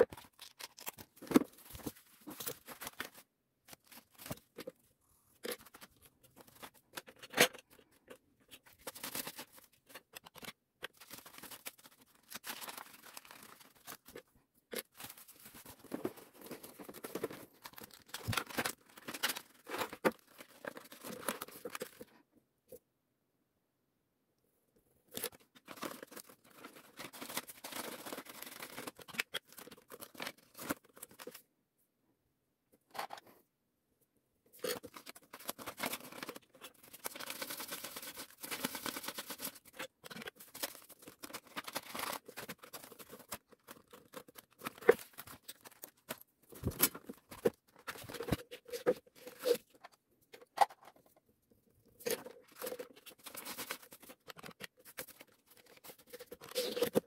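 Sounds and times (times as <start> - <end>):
banknotes rustling and flicking: 34.6 - 49.8.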